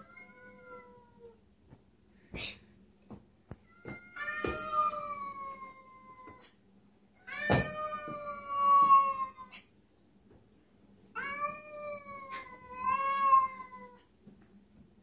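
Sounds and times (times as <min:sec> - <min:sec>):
cat yowling: 0:03.8 - 0:06.5, 0:07.2 - 0:09.6, 0:11.2 - 0:14.1.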